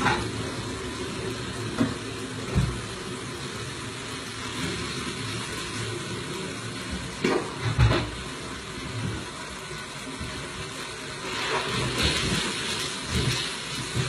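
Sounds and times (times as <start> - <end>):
kitchen items knocking and clattering: 7.2 - 8.2.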